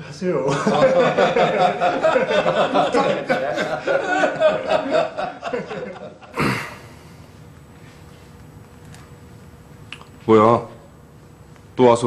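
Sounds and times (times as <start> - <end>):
people laughing: 0.5 - 6.7.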